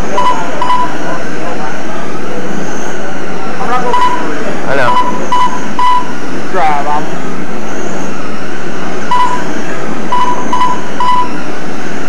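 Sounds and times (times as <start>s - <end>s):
short electronic beeps: 0.0s - 1.2s, 3.8s - 6.2s, 9.1s - 11.4s.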